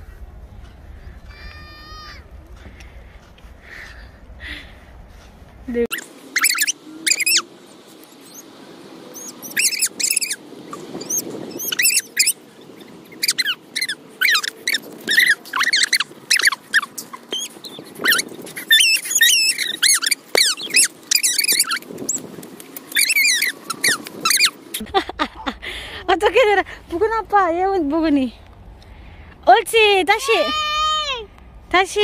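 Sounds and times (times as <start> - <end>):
short high-pitched squeaks: 5.9 - 7.5, 9.2 - 22.2, 22.9 - 24.6.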